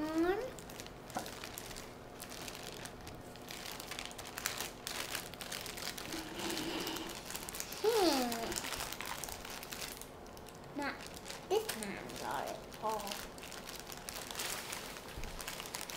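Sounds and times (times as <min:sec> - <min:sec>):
plastic bag crinkling: 0:00.1 - 0:15.9.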